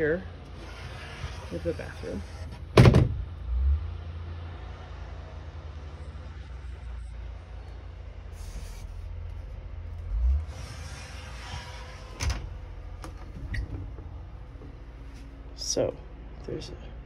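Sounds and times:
sliding door scraping along track: 0:00.0 - 0:02.8, 0:10.2 - 0:14.7
door thump: 0:02.8 - 0:03.2
low rumble: 0:03.0 - 0:17.0.

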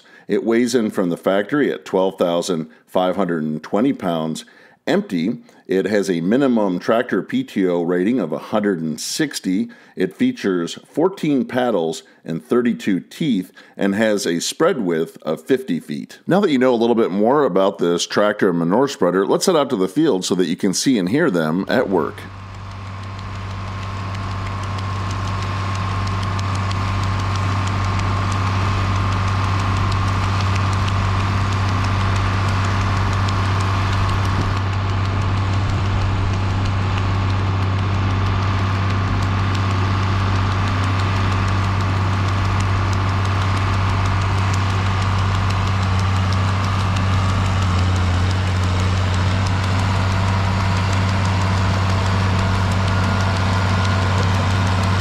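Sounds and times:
tractor diesel engine under load: 0:21.3 - 0:55.0
manure spreader throwing manure: 0:21.4 - 0:55.0.

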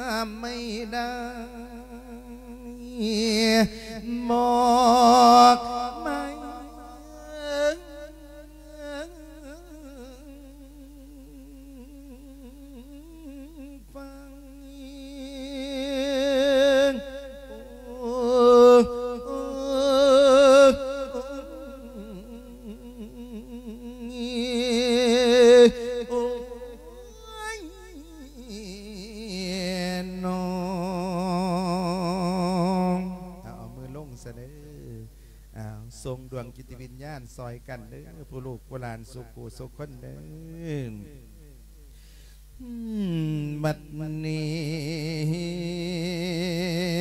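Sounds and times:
monk chanting into a microphone: 0:00.0 - 0:41.8, 0:42.6 - 0:47.0.

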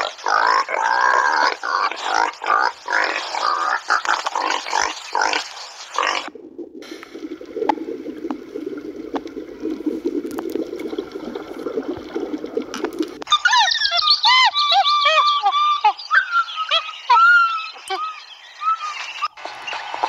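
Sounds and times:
underwater low rushing noise: 0:05.6 - 0:13.3
faint underwater clicks: 0:06.2 - 0:13.3.

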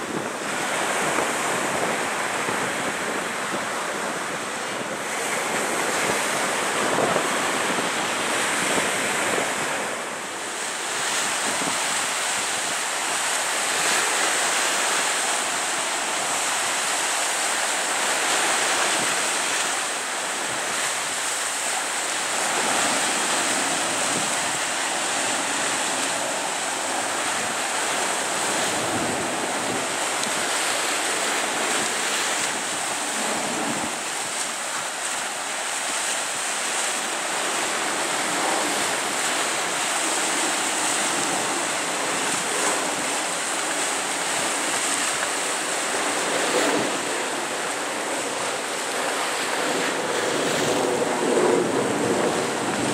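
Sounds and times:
waves washing on shore: 0:00.0 - 0:52.9
wind rushing across microphone: 0:00.0 - 0:52.9.

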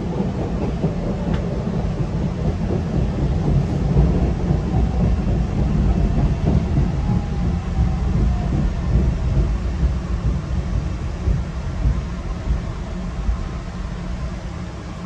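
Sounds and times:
subway train rumbling on rails: 0:00.0 - 0:15.0.

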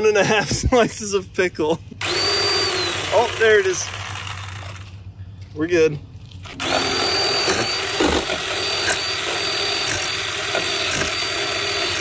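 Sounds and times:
electric chainsaw whining: 0:02.0 - 0:05.0, 0:06.5 - 0:12.0.

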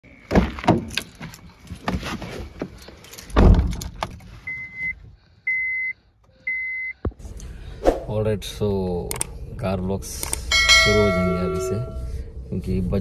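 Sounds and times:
car warning chime beeps: 0:04.5 - 0:07.0, 0:10.5 - 0:12.1.

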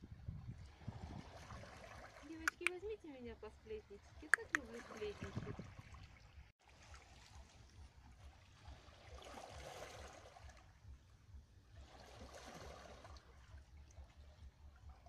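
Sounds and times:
small waves lapping on rocks: 0:04.0 - 0:10.7, 0:11.8 - 0:14.4.

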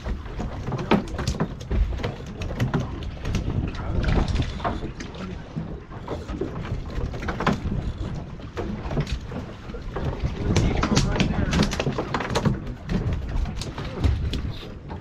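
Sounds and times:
light clicks and knocks: 0:00.0 - 0:05.3
wind buffeting microphone: 0:00.0 - 0:15.0.

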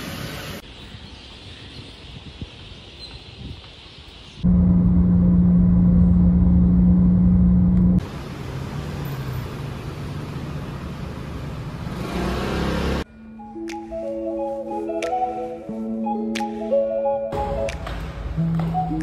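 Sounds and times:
outdoor traffic hiss: 0:00.0 - 0:05.2, 0:08.0 - 0:13.0
constant low hum: 0:04.4 - 0:08.0
car road and engine rumble: 0:04.4 - 0:13.1.

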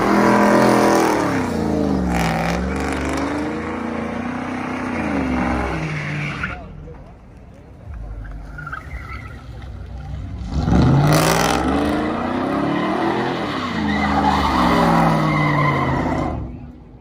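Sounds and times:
tyres squealing on wet pavement: 0:04.4 - 0:06.8, 0:08.1 - 0:16.7
truck engine revving: 0:08.9 - 0:16.6.

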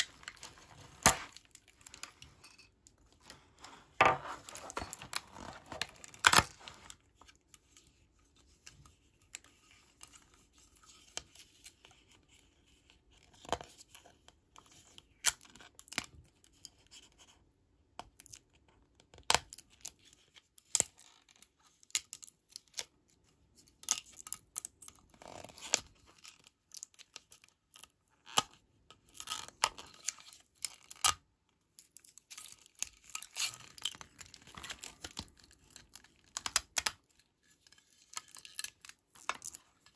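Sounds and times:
packaging rustling: 0:00.0 - 0:02.6, 0:03.2 - 0:07.0.

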